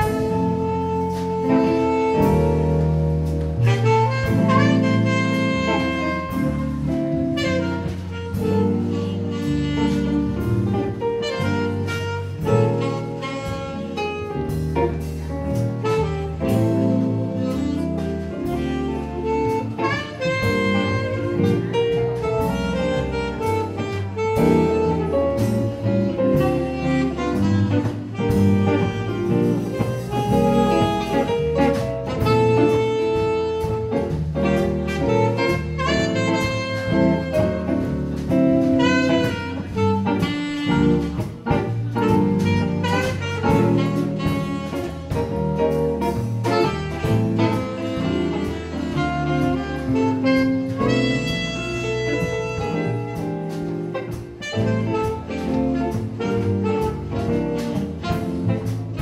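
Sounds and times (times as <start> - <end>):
double bass: 0.0 - 59.0
saxophone lead: 0.0 - 59.0.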